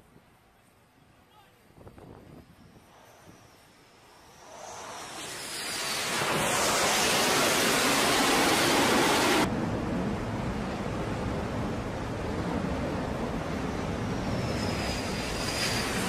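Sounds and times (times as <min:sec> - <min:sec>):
jet engine roar: 0:02.4 - 0:16.0
rush of wind and sea: 0:04.4 - 0:16.0.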